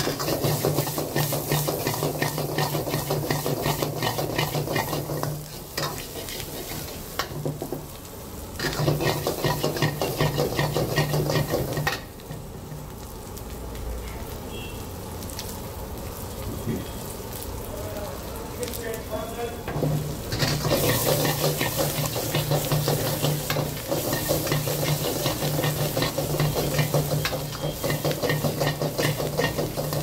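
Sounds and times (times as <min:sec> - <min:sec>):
ladle scraping a wok: 0:00.0 - 0:07.4, 0:08.6 - 0:12.0, 0:19.7 - 0:30.0
onions sizzling: 0:00.0 - 0:30.0.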